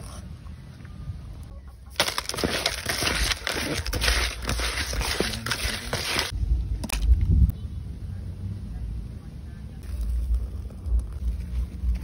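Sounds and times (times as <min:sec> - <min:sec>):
gritty salt scrubbing: 0:02.0 - 0:06.4.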